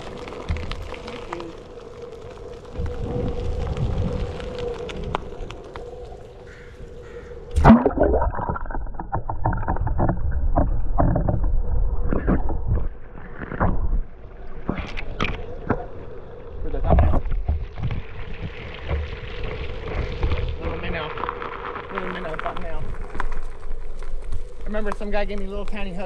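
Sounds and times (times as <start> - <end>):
underwater sloshing and knocking: 7.5 - 20.8.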